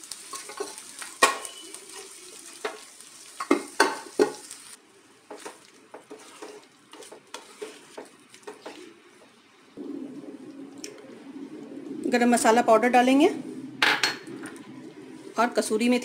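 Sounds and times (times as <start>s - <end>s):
frying sizzle: 0.0s - 16.0s
spoon scraping a pan: 5.3s - 9.0s.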